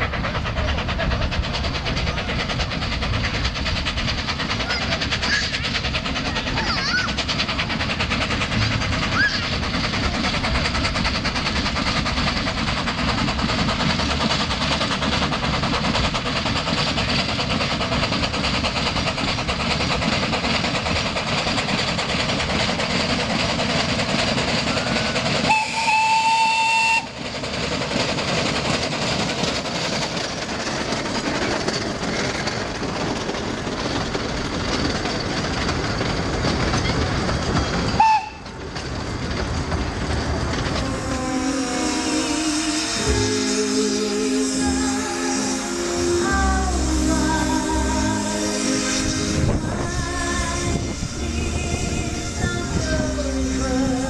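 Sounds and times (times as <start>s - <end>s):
steam locomotive running past: 0.0s - 54.0s
steam whistle blast: 25.5s - 27.2s, 38.0s - 38.5s, 41.0s - 49.6s.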